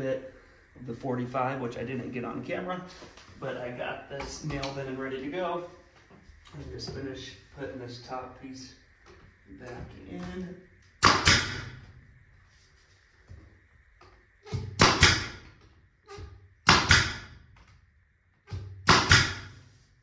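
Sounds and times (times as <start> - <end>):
nail gun popping: 11.0 - 11.7, 14.5 - 15.5, 16.6 - 17.3, 18.8 - 19.6.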